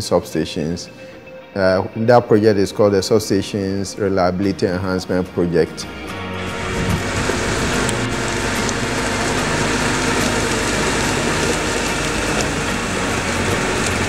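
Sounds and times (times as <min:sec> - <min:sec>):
loud even hiss: 0:05.9 - 0:14.0
machinery engine running: 0:05.9 - 0:14.0.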